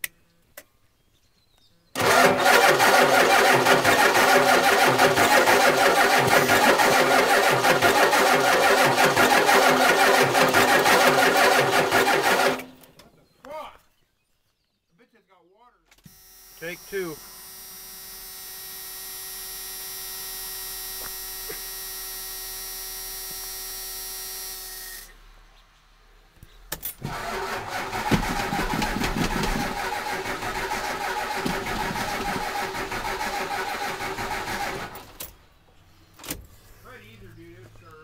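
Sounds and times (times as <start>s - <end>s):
engine cranking on starter: 2.0s - 13.0s, 27.0s - 35.4s
steady electrical buzz: 16.2s - 25.4s.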